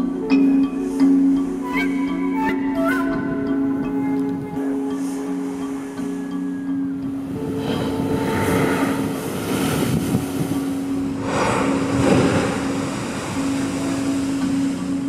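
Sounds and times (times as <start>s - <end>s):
sustained music tone: 0.0s - 15.0s
ocean waves crashing on rocks: 7.3s - 15.0s.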